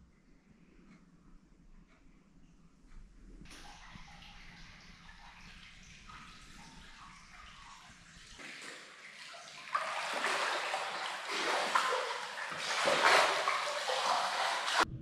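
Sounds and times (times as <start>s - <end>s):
bath water sloshing and splashing: 3.5s - 14.9s.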